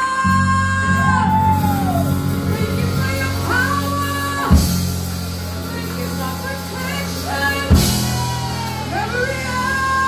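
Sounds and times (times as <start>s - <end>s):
low musical accompaniment: 0.0s - 10.0s.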